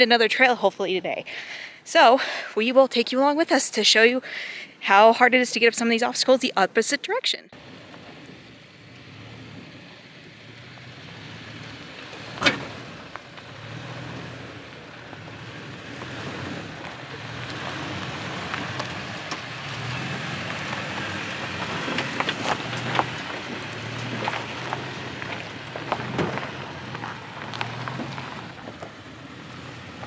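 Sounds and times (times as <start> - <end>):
pickup engine hum: 7.5 - 30.0
tyres crunching over loose stones: 10.6 - 30.0.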